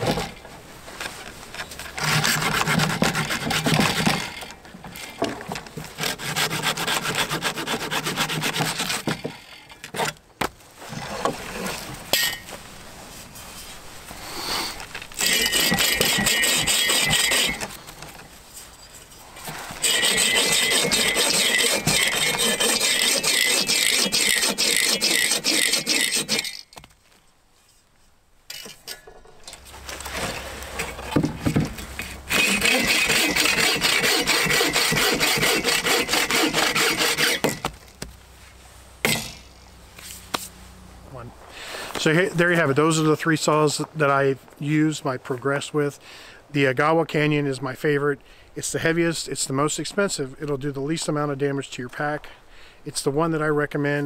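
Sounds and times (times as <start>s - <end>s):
hand saw cutting branch: 1.7s - 10.2s, 14.2s - 18.2s, 19.4s - 26.7s, 30.0s - 37.9s.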